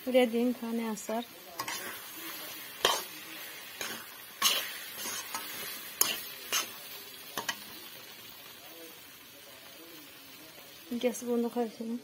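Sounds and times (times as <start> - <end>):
low sizzle: 0.0 - 12.0
metal spatula scraping pan: 1.6 - 6.8.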